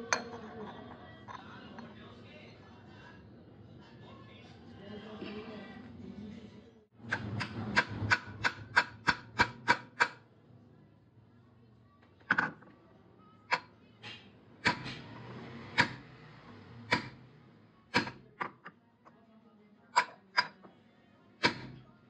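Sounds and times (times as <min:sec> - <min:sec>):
hammer striking steel: 0:16.9 - 0:17.2.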